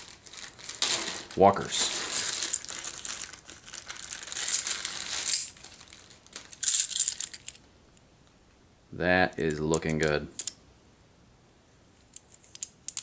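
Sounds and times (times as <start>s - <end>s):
plastic bag crinkling: 0.0s - 7.5s.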